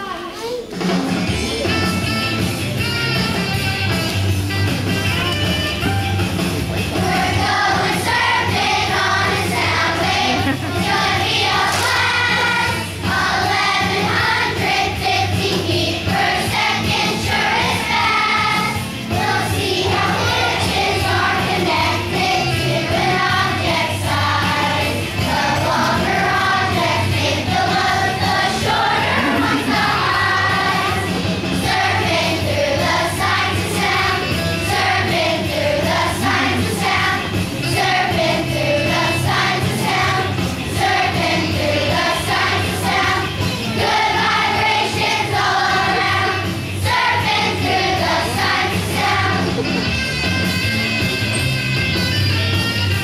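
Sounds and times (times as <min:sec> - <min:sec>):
children's choir singing: 0:06.8 - 0:50.0
low accompaniment: 0:24.8 - 0:34.1.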